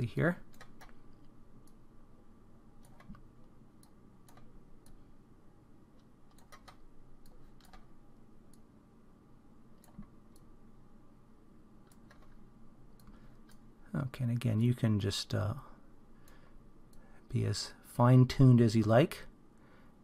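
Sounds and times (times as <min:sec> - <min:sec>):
faint steady hum: 0:00.0 - 0:20.0
computer mouse clicks: 0:00.5 - 0:01.8, 0:02.8 - 0:05.0, 0:06.0 - 0:07.9, 0:09.8 - 0:10.5, 0:11.8 - 0:13.6.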